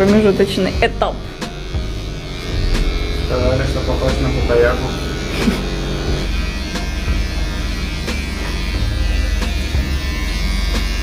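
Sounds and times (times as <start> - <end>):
electric hair clippers buzzing: 0.0 - 11.0.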